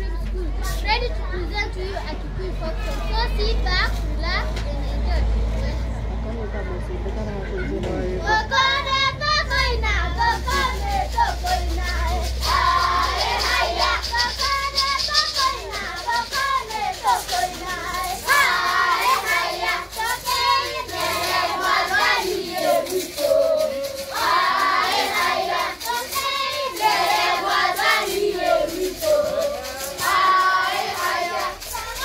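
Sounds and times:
children singing together: 0:08.3 - 0:32.0.

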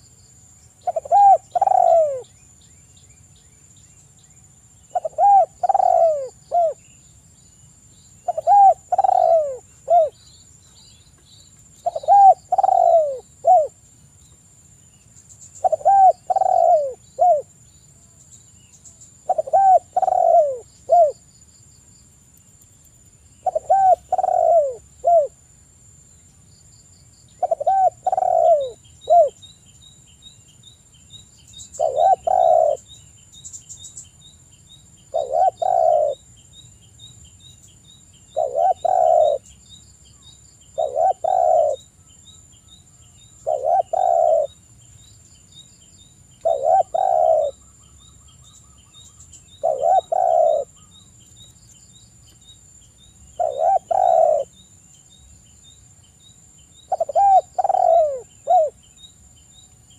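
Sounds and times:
dove cooing: 0:00.8 - 0:02.3, 0:04.9 - 0:06.8, 0:08.2 - 0:10.2, 0:11.8 - 0:13.8, 0:15.6 - 0:17.5, 0:19.2 - 0:21.2, 0:23.4 - 0:25.4, 0:27.4 - 0:29.4, 0:31.8 - 0:32.9, 0:35.1 - 0:36.2, 0:38.3 - 0:39.5, 0:40.8 - 0:41.8, 0:43.4 - 0:44.6, 0:46.4 - 0:47.6, 0:49.5 - 0:50.8, 0:53.4 - 0:54.5, 0:56.9 - 0:58.8.

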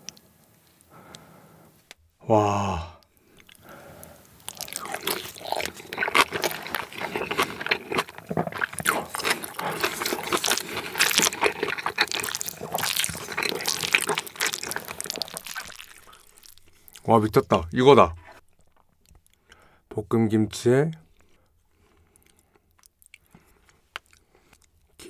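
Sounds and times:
wet chewing sounds: 0:03.2 - 0:17.5, 0:21.0 - 0:25.0
chopsticks stirring wet food: 0:04.4 - 0:17.4.

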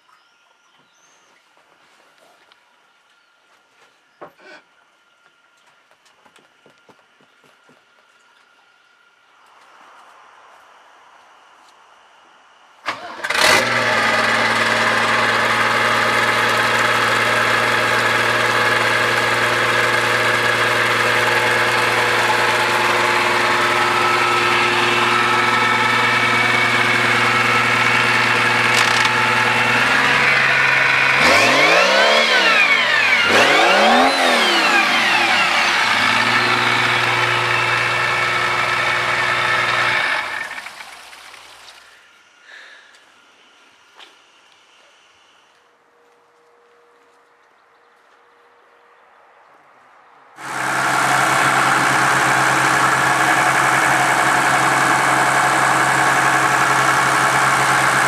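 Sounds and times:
diesel engine idling and revving: 0:12.9 - 0:42.1, 0:50.4 - 0:58.0.

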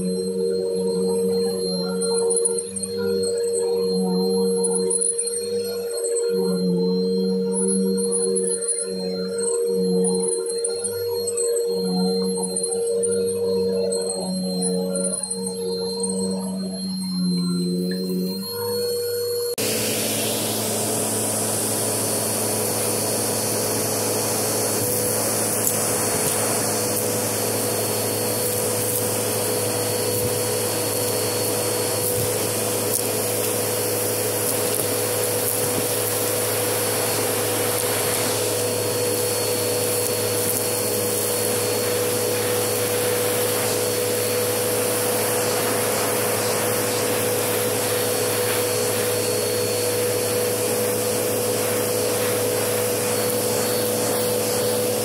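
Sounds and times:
vacuum cleaner running: 0:00.0 - 0:55.0
debris crackling in vacuum: 0:19.6 - 0:55.0.

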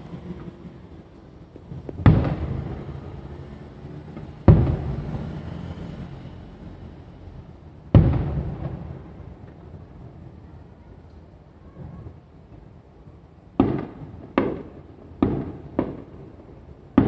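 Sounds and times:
firework shells booming: 0:01.6 - 0:05.4, 0:07.9 - 0:09.7, 0:13.6 - 0:17.0.

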